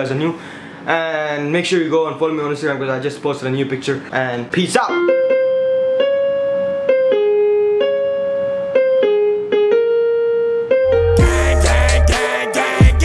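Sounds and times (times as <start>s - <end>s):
electronic keyboard piano melody: 4.8s - 13.0s.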